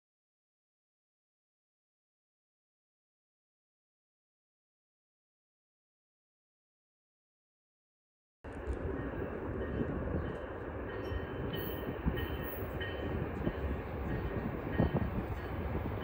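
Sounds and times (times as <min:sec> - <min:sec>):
distant train rumbling: 0:08.5 - 0:16.0.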